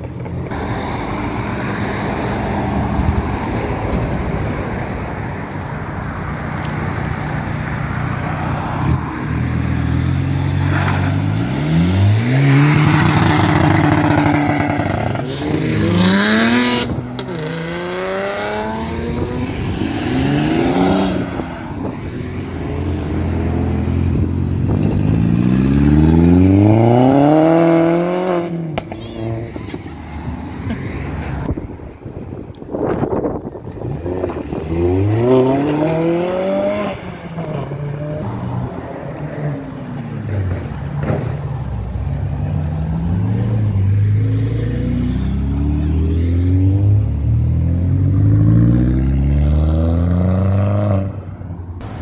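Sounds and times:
car engines revving: 0.0s - 52.0s.

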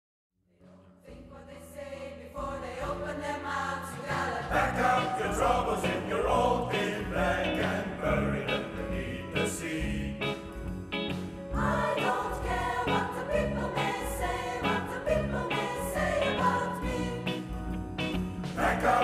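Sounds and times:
pop choir singing: 0.7s - 10.5s, 11.4s - 19.0s
live band playing: 10.1s - 19.0s.

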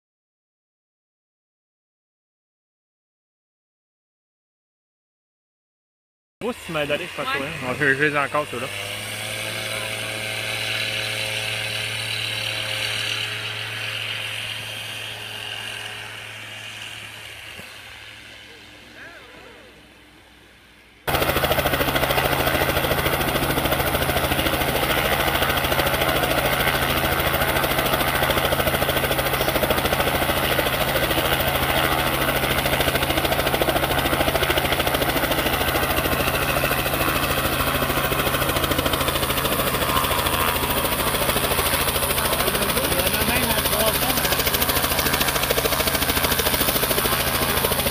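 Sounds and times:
aircraft piston engine idling: 6.4s - 8.6s, 9.6s - 47.9s.

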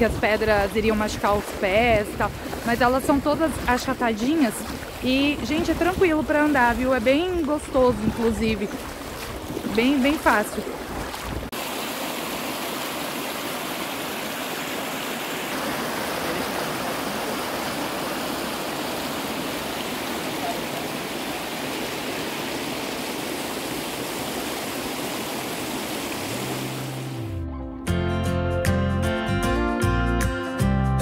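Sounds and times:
river rushing over stones: 0.0s - 27.3s
soft music: 26.3s - 31.0s.

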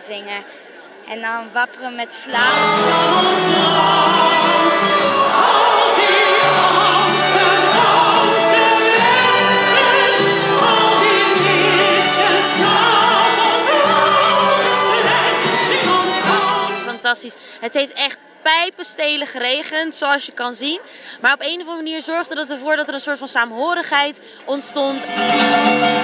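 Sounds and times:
operatic voice singing: 2.2s - 17.2s
instrumental accompaniment: 2.3s - 17.0s, 25.0s - 26.0s.

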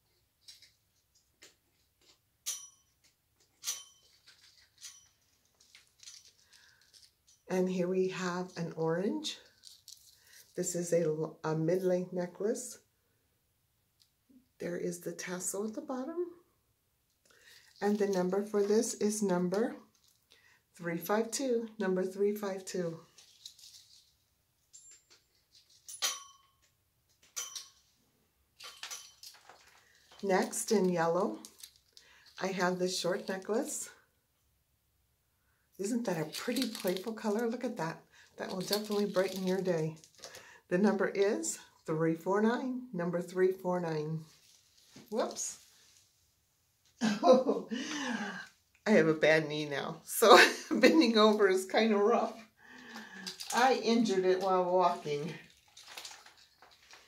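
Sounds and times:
jewelry clicking and clinking: 0.4s - 7.5s, 9.4s - 10.6s, 23.2s - 27.9s, 28.6s - 32.4s, 35.9s - 37.4s, 38.3s - 40.4s.

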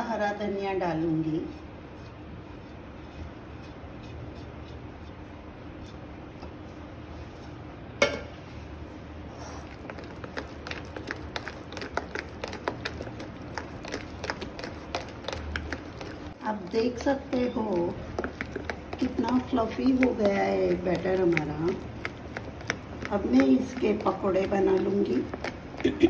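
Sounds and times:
batter being beaten in a bowl: 9.7s - 26.0s.

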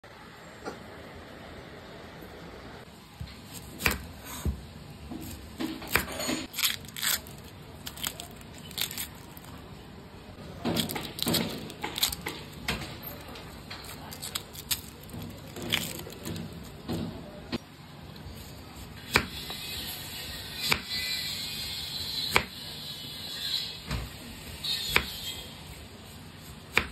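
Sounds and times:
onions being handled: 3.2s - 9.8s, 10.6s - 16.9s.

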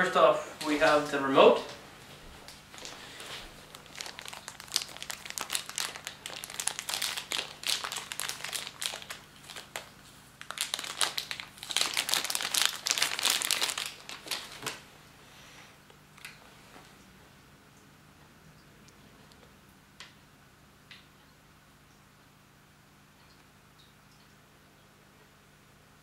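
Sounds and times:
plastic bag crinkling: 2.6s - 14.9s.

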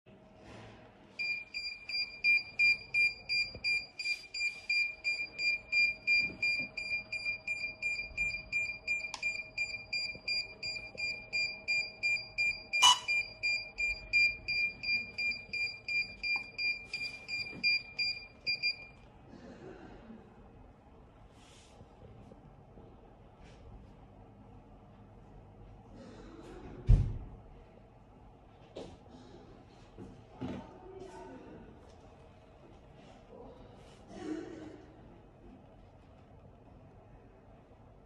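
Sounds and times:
remote controller short high beeps: 12.1s - 14.3s.

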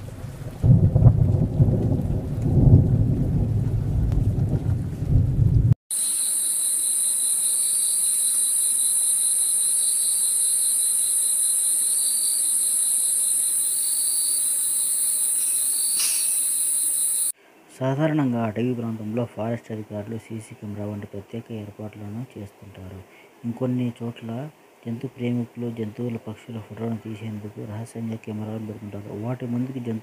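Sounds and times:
low rumble: 0.0s - 5.8s
insect chorus trilling: 5.9s - 17.4s.

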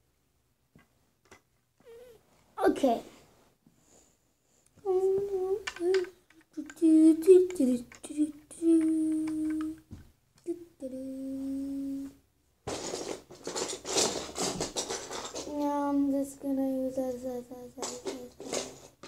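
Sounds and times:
child humming: 1.8s - 2.2s, 4.8s - 9.8s, 10.5s - 12.2s, 15.5s - 18.3s
rustling with small clicks: 4.6s - 10.5s, 12.7s - 16.2s, 17.1s - 19.0s.

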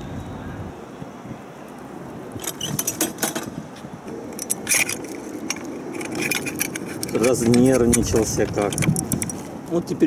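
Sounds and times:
metal brackets clinking and scraping: 2.4s - 3.5s, 4.1s - 9.5s
sharp metal clicks: 4.3s - 9.4s.

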